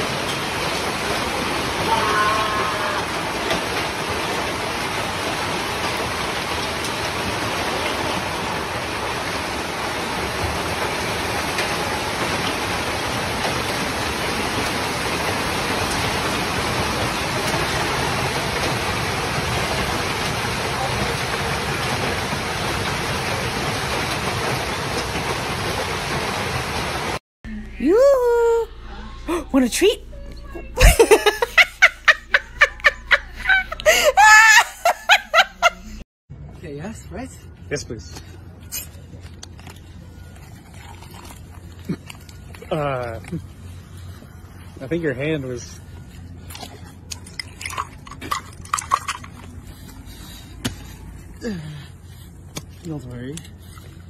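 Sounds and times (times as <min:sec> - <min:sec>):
heavy rain pouring: 0:00.0 - 0:27.2.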